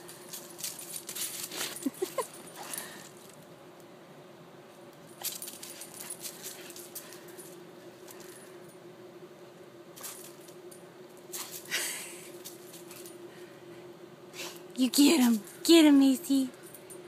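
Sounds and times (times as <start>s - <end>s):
collar tags jingling: 0.0s - 3.4s, 5.0s - 8.8s, 10.0s - 13.3s, 14.8s - 17.0s
faint hum: 0.0s - 17.0s.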